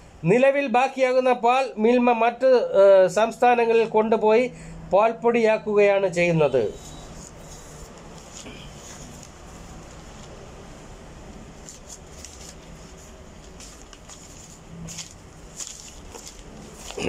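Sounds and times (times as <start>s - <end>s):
low background hum: 0.0s - 17.0s
newspaper rustling: 6.8s - 10.7s, 11.3s - 17.0s.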